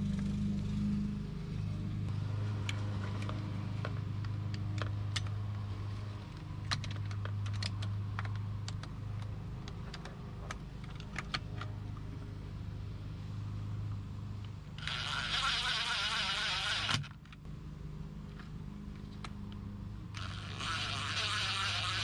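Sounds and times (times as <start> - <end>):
plastic and metal parts clicking: 6.3 - 12.1.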